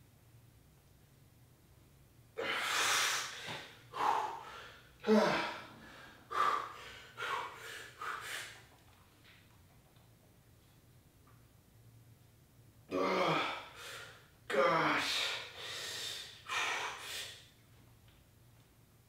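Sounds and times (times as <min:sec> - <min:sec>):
man breathing out hard: 0:02.4 - 0:08.6, 0:15.0 - 0:17.4.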